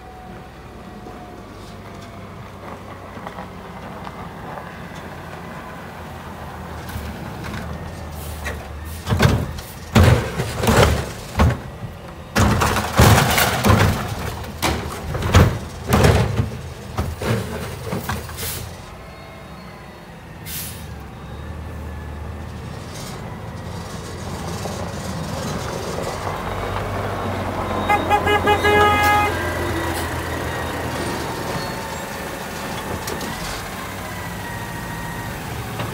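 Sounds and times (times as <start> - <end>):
garbage truck engine running: 6.3 - 35.9
air brake hisses and clunks: 18.3 - 18.8, 20.4 - 21.0.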